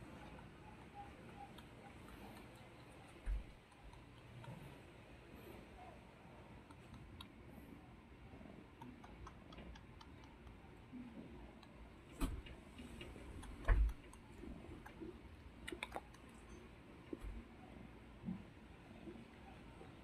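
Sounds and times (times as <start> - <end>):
kitten suckling clicks: 1.5 - 4.8, 6.7 - 7.4, 8.8 - 10.7, 11.6 - 16.5.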